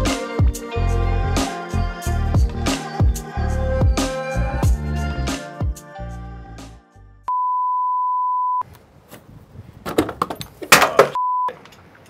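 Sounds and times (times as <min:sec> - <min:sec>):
censor bleep: 0:07.3 - 0:08.6, 0:11.2 - 0:11.6.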